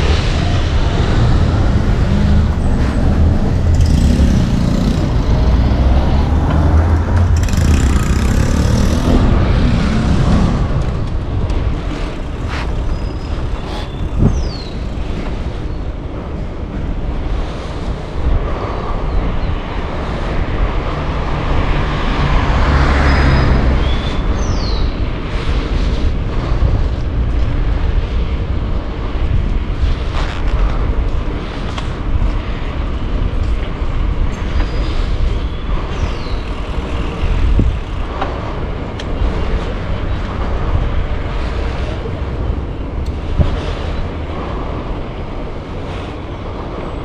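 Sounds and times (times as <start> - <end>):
motor vehicle passing: 0.0 - 15.6
bicycle road noise: 0.0 - 47.0
wind on microphone: 0.0 - 47.0
bicycle clicks and rattles: 7.0 - 9.2.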